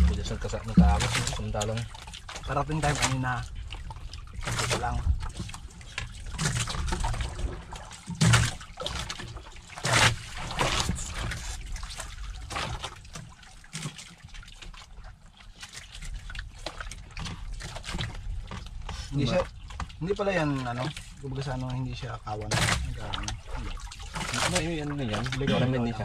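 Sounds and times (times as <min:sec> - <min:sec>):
low steady rumble: 0:00.0 - 0:03.6.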